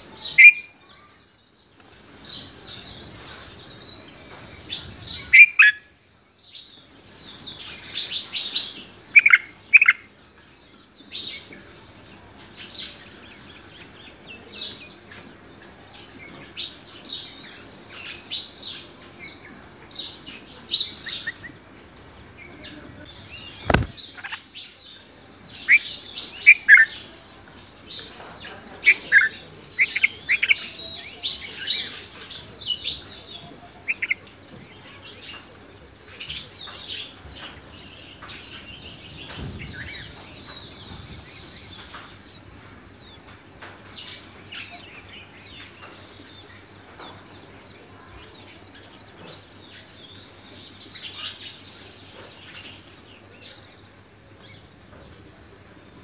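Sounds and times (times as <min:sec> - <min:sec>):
birds chirping: 0:00.0 - 0:56.0
sharp click: 0:23.6 - 0:24.0.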